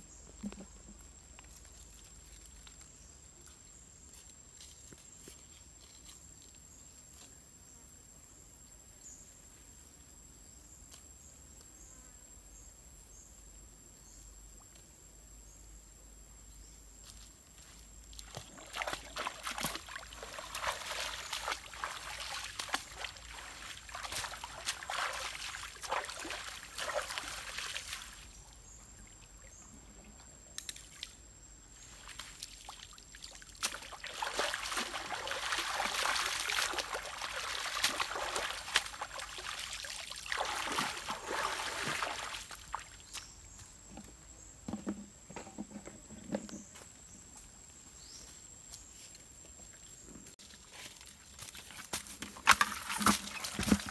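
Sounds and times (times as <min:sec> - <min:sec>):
water splashing and sloshing: 0:18.1 - 0:28.4, 0:31.9 - 0:43.2, 0:50.9 - 0:53.9.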